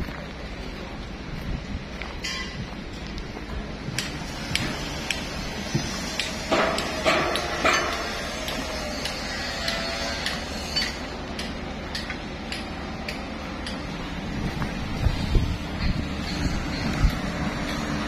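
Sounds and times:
steady low hum: 0:00.0 - 0:18.0
sharp metal clicks and knocks: 0:06.1 - 0:13.9.

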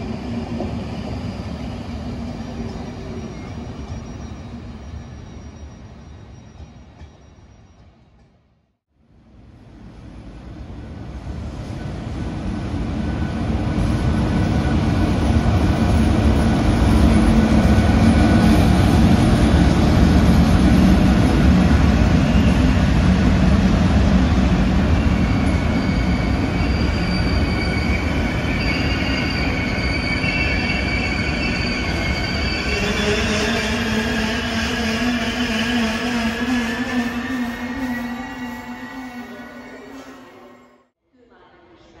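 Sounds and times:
high wheel squeal: 0:00.0 - 0:07.8, 0:24.9 - 0:40.8
train rumbling past: 0:00.0 - 0:40.9.

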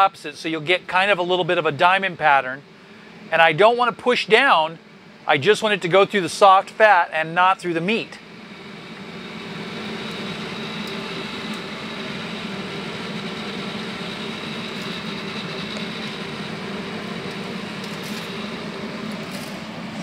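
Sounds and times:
grill fan hum: 0:00.0 - 0:20.0.

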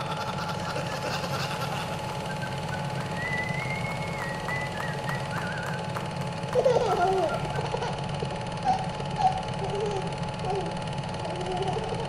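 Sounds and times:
low mechanical drone: 0:00.0 - 0:12.0
thin high whistling tone: 0:03.2 - 0:05.8.

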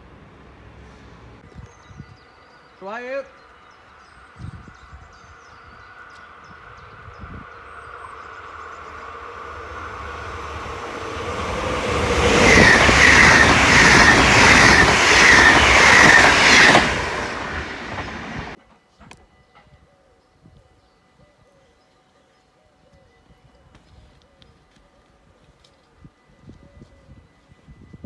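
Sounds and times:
electric train passing: 0:00.0 - 0:19.7
carriages pulsing over rails: 0:02.0 - 0:18.6.

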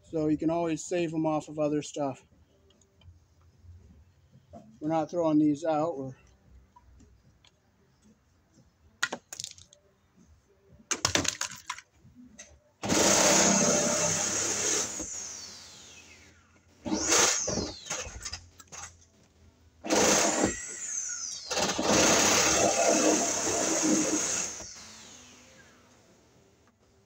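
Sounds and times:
cordless drill motor whine: 0:12.8 - 0:16.2, 0:16.8 - 0:18.2, 0:19.8 - 0:25.9.

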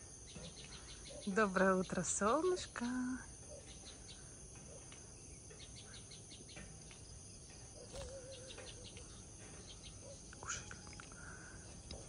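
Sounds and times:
faint insect trilling: 0:07.6 - 0:11.9
short bird chirps: 0:07.8 - 0:09.1.

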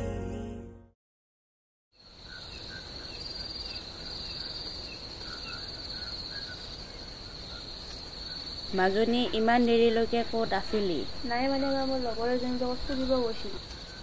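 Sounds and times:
background music: 0:00.0 - 0:01.0
crickets trilling: 0:02.0 - 0:14.0.

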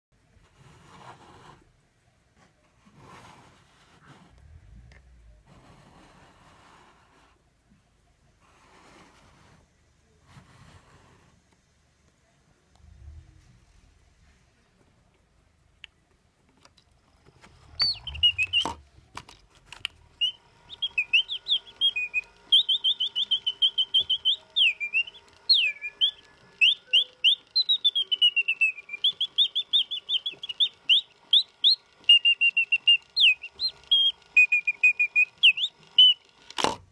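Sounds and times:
mechanical bird whistling trills: 0:17.8 - 0:18.7, 0:20.2 - 0:36.4.

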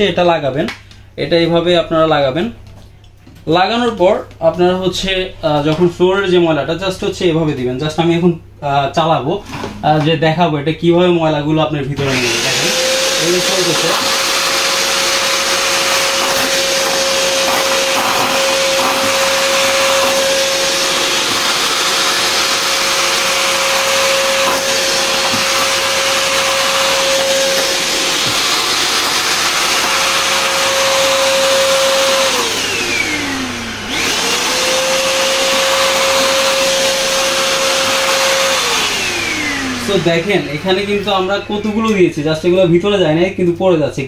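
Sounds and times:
vacuum cleaner running: 0:12.0 - 0:42.7.

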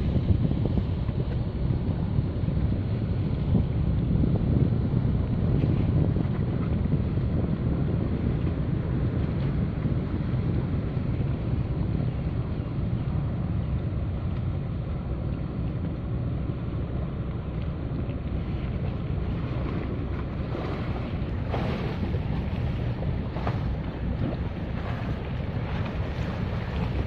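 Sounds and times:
wind rumble on microphone: 0:00.0 - 0:27.0
boat engine motoring past: 0:10.7 - 0:27.0.

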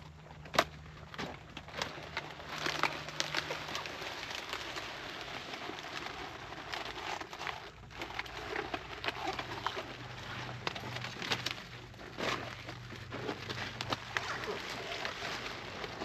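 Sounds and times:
leaves and stems snapping: 0:00.4 - 0:04.8
leafy plants rustling: 0:01.0 - 0:16.0.

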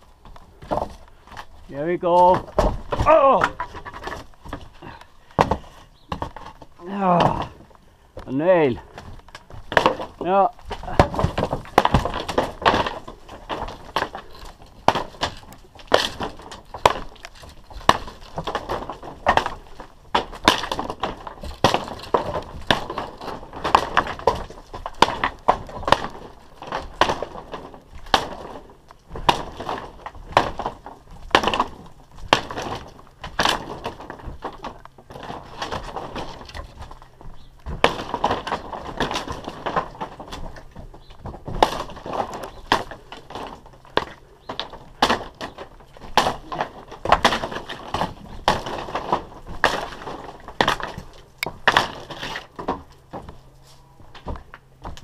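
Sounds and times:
wooden roof timbers cracking: 0:00.0 - 0:55.0.

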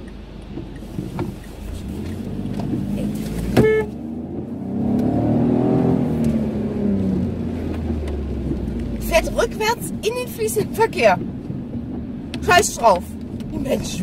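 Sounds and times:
car engine running: 0:00.0 - 0:14.0
car horn toot: 0:03.5 - 0:04.0.

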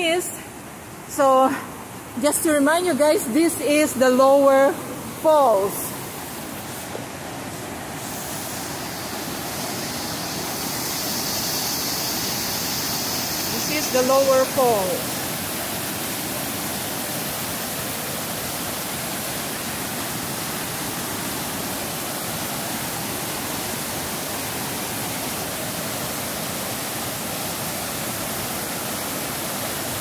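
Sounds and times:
whitewater rushing over rocks: 0:04.4 - 0:30.0.

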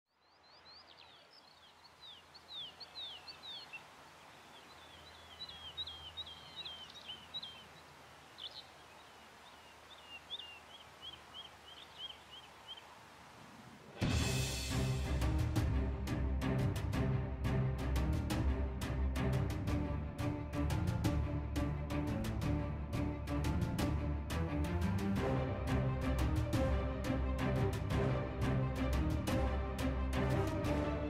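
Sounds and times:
small songbird chirping: 0:00.1 - 0:13.0
faint outdoor background noise: 0:00.1 - 0:14.5.

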